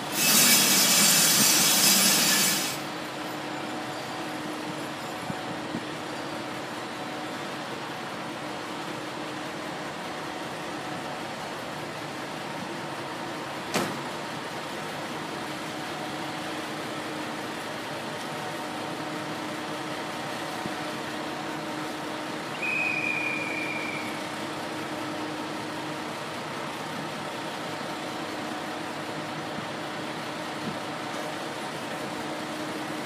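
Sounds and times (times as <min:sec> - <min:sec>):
high train whistle: 0:00.0 - 0:02.8, 0:22.5 - 0:24.4
diesel railcar engine idling: 0:00.0 - 0:33.0.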